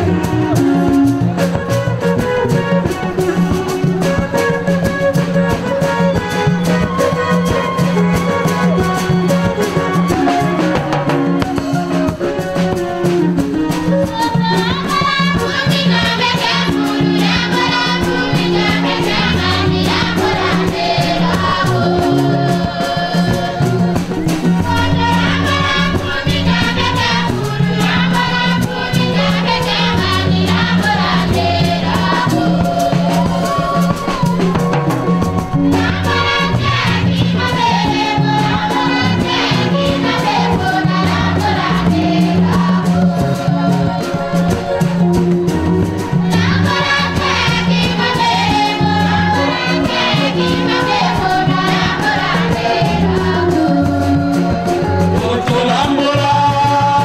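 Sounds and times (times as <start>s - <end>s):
rattling percussion: 0.0s - 57.0s
church choir singing a hymn: 14.1s - 57.0s.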